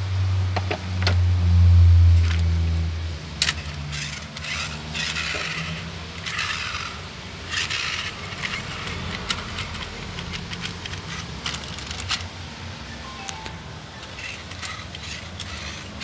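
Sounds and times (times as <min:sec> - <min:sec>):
rubber tyres scraping on tiles: 0:03.5 - 0:13.0, 0:14.0 - 0:16.0
small plastic clicks: 0:07.5 - 0:12.3.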